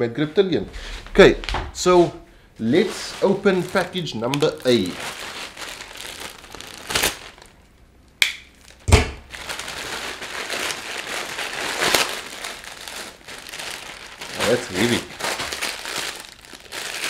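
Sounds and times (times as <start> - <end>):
plastic mailer crinkling: 2.6 - 7.6, 8.6 - 17.0.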